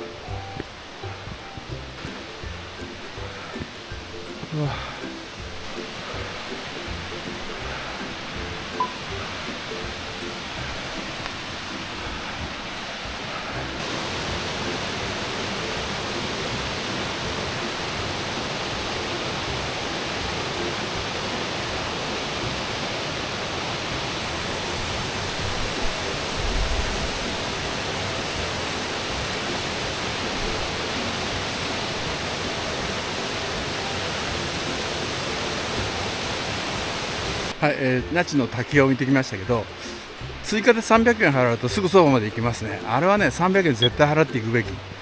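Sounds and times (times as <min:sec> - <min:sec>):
waterfall rushing: 0:00.0 - 0:45.0.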